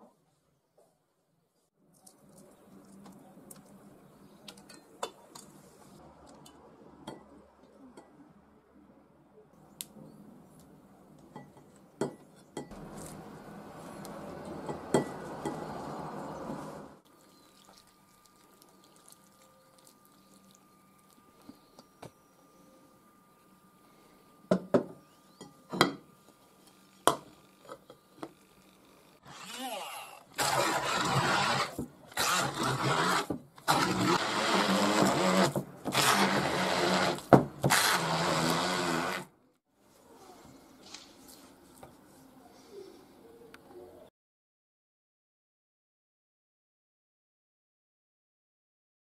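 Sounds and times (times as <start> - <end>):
stick blender whirring: 28.8 - 39.3.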